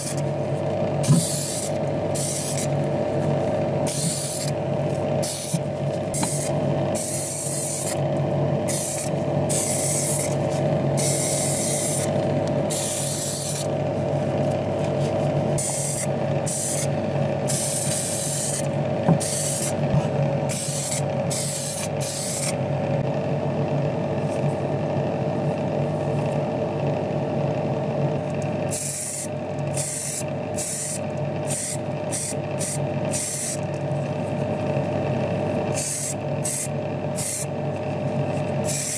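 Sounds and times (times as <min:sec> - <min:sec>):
steady low hum: 0:00.0 - 0:38.9
spray paint hissing: 0:01.0 - 0:02.7, 0:03.9 - 0:04.5, 0:05.2 - 0:08.0, 0:08.7 - 0:10.4, 0:11.0 - 0:12.1, 0:12.7 - 0:13.7, 0:15.6 - 0:16.9, 0:17.5 - 0:19.8, 0:20.5 - 0:22.5, 0:28.7 - 0:33.6, 0:35.8 - 0:37.5, 0:38.6 - 0:38.9.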